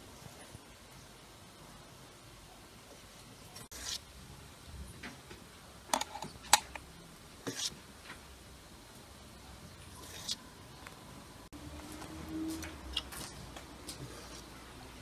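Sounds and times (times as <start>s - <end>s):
spoon scraping: 3.6s - 4.1s, 7.4s - 7.8s, 9.9s - 10.5s.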